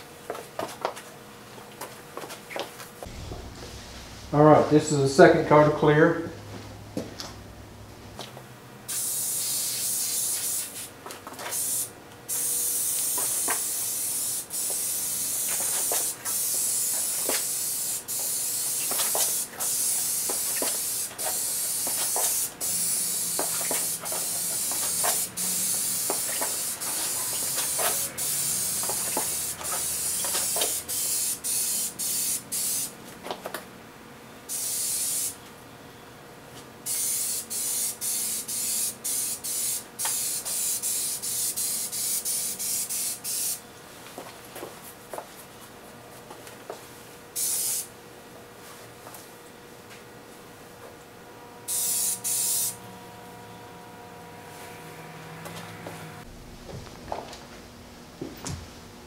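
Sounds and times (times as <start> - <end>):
aerosol spray can hissing: 8.9 - 10.9, 11.5 - 32.9, 34.5 - 35.4, 36.9 - 43.6, 47.4 - 47.9, 51.7 - 52.8.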